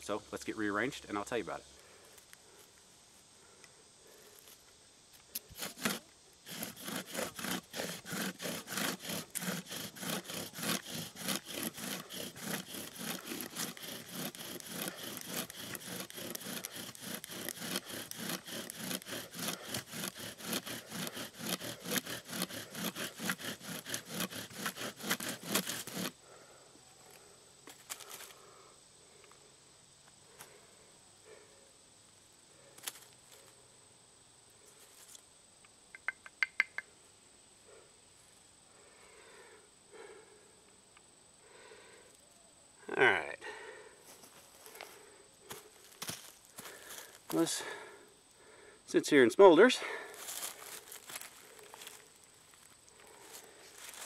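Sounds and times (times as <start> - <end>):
wooden spindle grinding in hearth: 5.3 - 26.4, 44.2 - 47.9, 49.9 - 54.0.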